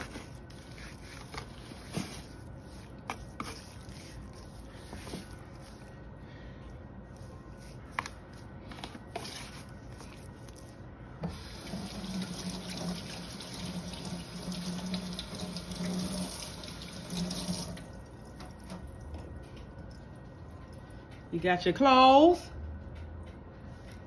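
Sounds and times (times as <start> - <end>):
low steady hum: 0.0 - 24.0
water tap running into sink: 11.3 - 19.1.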